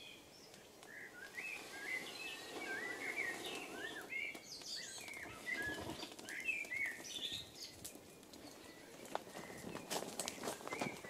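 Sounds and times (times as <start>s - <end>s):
small birds chirping: 0.0s - 11.0s
breath blowing into tinder: 1.3s - 4.4s.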